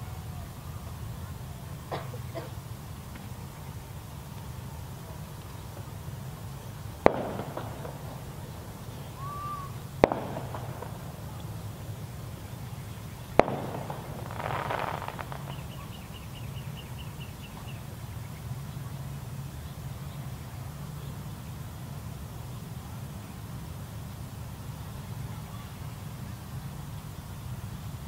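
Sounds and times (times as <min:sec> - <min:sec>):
salute gunshots with echo: 0:07.0 - 0:08.5, 0:10.0 - 0:11.4, 0:13.4 - 0:15.8.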